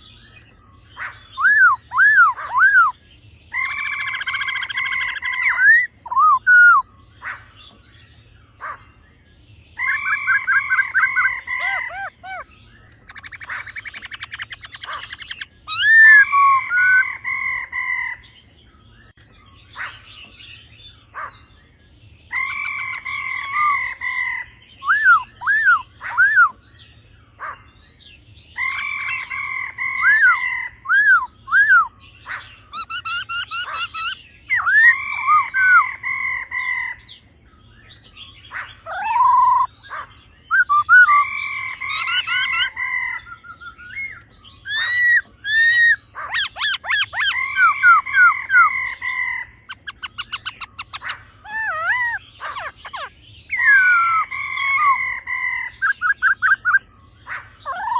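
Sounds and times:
bird singing whistled phrases: 0:01.3 - 0:07.0, 0:09.8 - 0:17.2, 0:24.8 - 0:26.6, 0:29.1 - 0:32.0, 0:32.7 - 0:36.0, 0:38.8 - 0:39.8, 0:40.5 - 0:55.0, 0:55.8 - 0:56.8.

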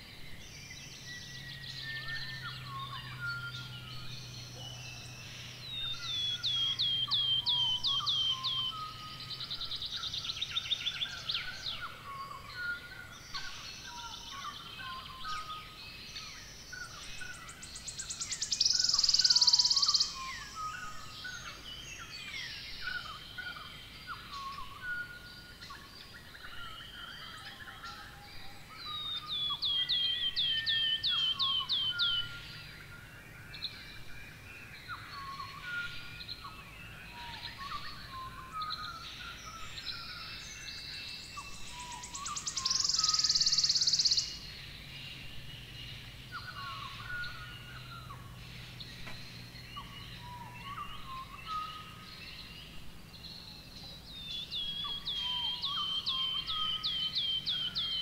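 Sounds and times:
birds calling and chirping: 0:00.0 - 0:58.0
loud buzzing bird trill: 0:17.4 - 0:21.0, 0:41.5 - 0:44.5.

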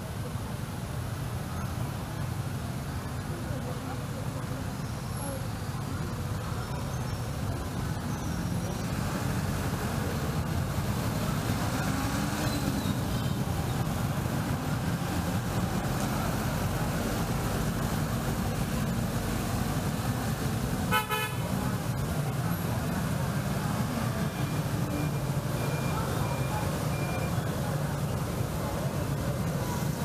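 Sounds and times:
vehicle engines passing: 0:00.0 - 0:30.0
car horn beep: 0:20.9 - 0:21.4.

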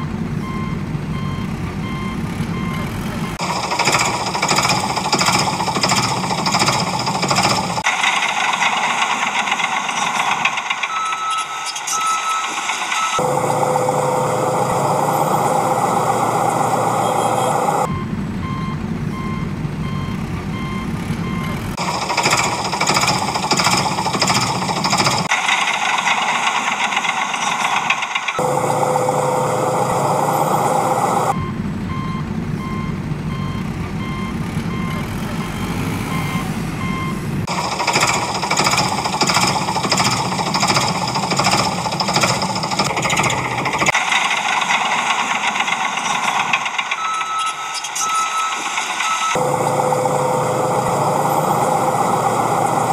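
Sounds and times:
reversing beeper: 0:00.0 - 0:07.9, 0:10.0 - 0:25.3, 0:27.5 - 0:44.6, 0:45.3 - 0:52.9
truck engine running: 0:00.0 - 0:52.9
fast even rattling: 0:03.4 - 0:11.1, 0:21.8 - 0:28.4, 0:37.4 - 0:47.0.

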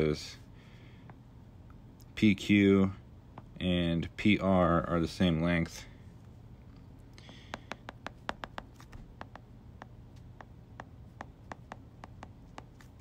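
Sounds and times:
stylus tapping on tablet screen: 0:07.2 - 0:13.0.

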